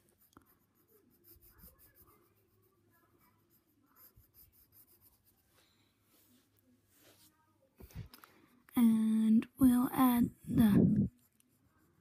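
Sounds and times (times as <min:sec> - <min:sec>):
pencil scratching on paper: 0:00.0 - 0:05.7, 0:10.1 - 0:12.0.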